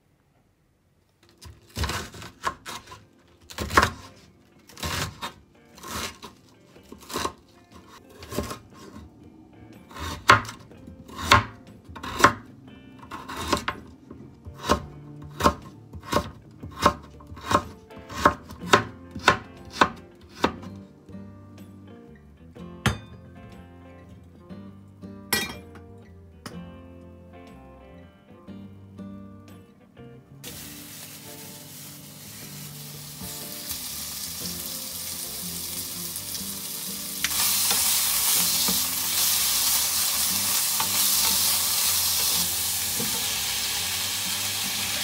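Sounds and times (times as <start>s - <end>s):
knife chopping food: 1.4s - 9.0s, 9.9s - 12.4s, 13.0s - 13.9s, 14.5s - 20.7s.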